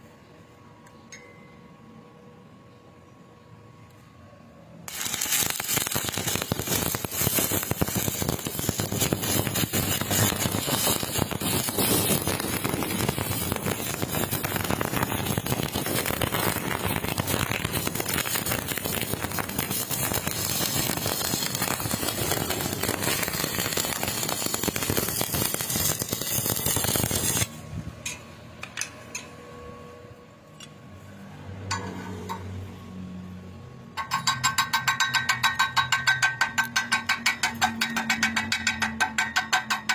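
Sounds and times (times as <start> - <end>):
welding arc crackling: 4.9 - 27.6
fast metal tapping: 34.0 - 39.9.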